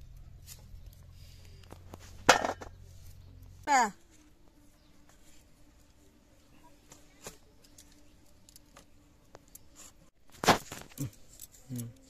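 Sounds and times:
small ticks: 6.9s - 10.0s, 10.9s - 12.0s.

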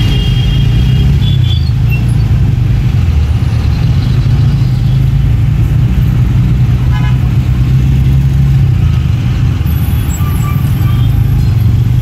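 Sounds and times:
idling city traffic rumble: 0.0s - 12.0s.

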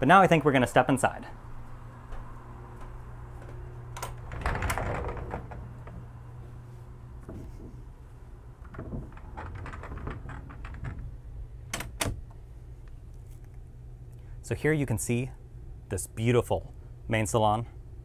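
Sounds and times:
steady low hum: 0.0s - 18.0s
door opening: 2.1s - 6.4s, 7.1s - 12.4s
latch clicks: 3.4s - 5.6s, 8.7s - 12.4s.

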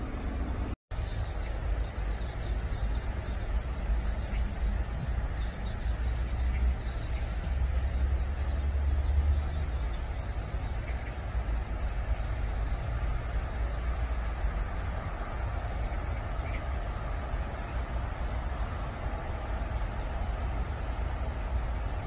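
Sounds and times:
low rumble and hiss: 0.0s - 22.0s.

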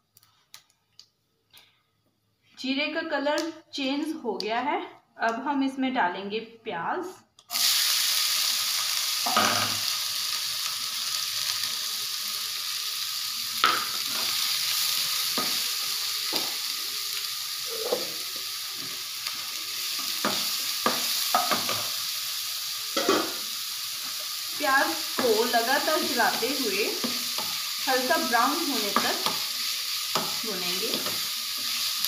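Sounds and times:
onions sizzling in oil: 7.5s - 32.0s.

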